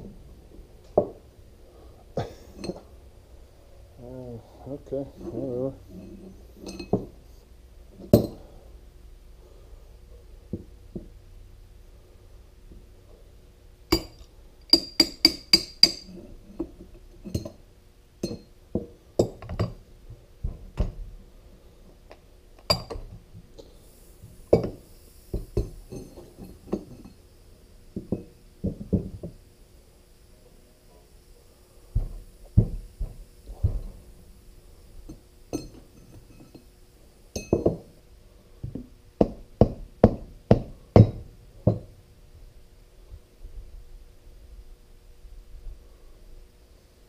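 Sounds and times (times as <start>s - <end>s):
steel tools clinking and knocking: 5.9s - 7.1s, 13.9s - 17.6s, 18.2s - 18.5s, 35.1s - 36.7s, 37.3s - 37.9s.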